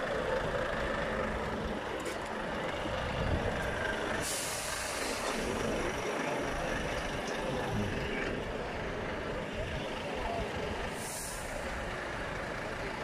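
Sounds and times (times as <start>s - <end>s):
diesel trucks rumbling: 0.0s - 13.0s
air brakes hissing: 4.1s - 5.6s, 10.9s - 11.8s.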